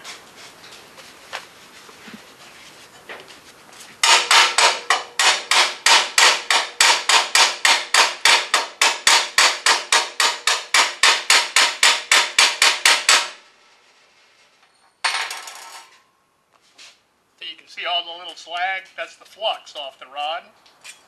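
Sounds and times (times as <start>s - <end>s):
chipping hammer striking steel: 4.0s - 13.4s.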